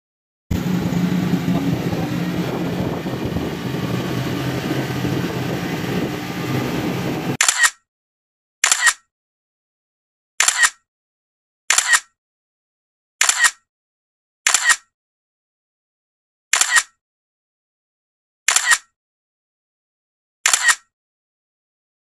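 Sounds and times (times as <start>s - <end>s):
noisy rumble with low hum: 0.5s - 7.4s
camera shutter clicks: 7.4s - 7.8s, 8.6s - 9.1s, 10.4s - 10.8s, 11.7s - 12.2s, 13.2s - 13.6s, 14.5s - 14.9s, 16.5s - 17.0s, 18.5s - 18.9s, 20.4s - 20.9s.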